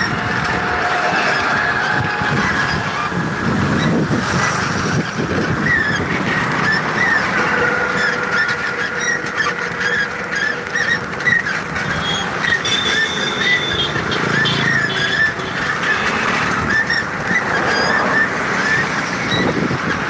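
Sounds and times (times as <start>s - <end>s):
road traffic noise: 0.0s - 20.0s
short high squeak: 5.5s - 19.8s.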